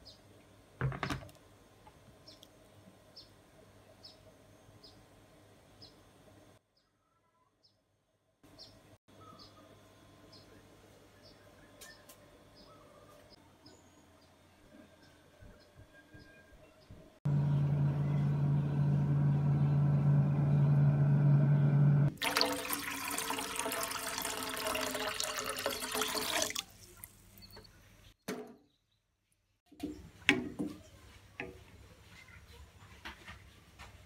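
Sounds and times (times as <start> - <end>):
water splashing into metal pot: 22.1 - 27.1
water running: 22.1 - 27.3.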